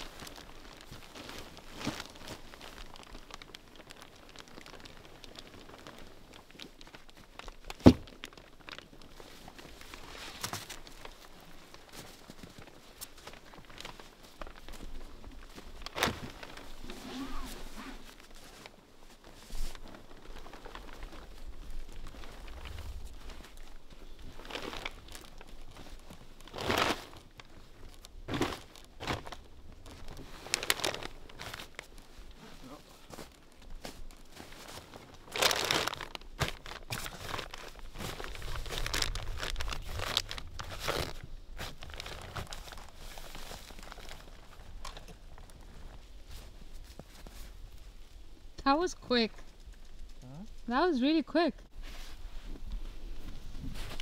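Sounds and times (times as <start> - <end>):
tent fabric rustling: 0.0 - 48.2, 51.7 - 54.0
footsteps crunching in snow: 51.7 - 54.0.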